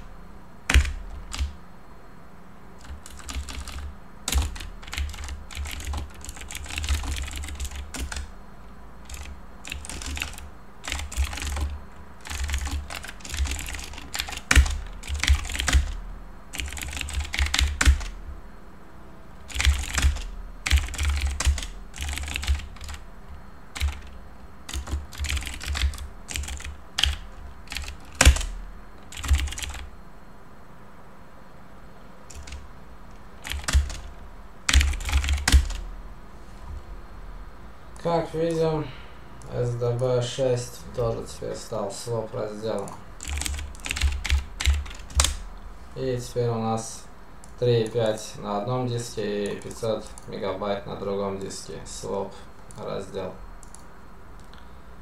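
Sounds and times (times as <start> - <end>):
computer keyboard typing: 0.7 - 1.6, 2.8 - 8.3, 9.0 - 18.2, 19.5 - 23.0, 23.7 - 29.9, 32.3 - 32.6, 33.4 - 34.1, 34.7 - 35.8, 42.7 - 45.5, 49.4 - 50.3, 53.6 - 54.6.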